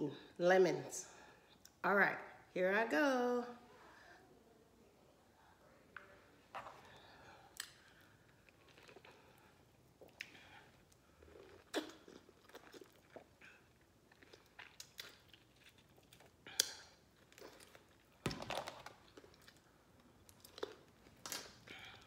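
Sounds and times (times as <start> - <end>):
person chewing lemon: 6.6 - 22.0
mouth clicks and smacks: 11.5 - 13.5.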